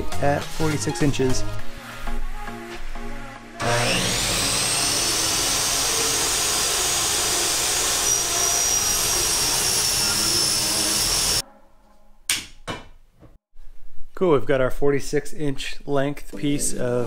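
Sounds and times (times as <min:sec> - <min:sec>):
miter saw cutting aluminum: 0:03.6 - 0:11.4.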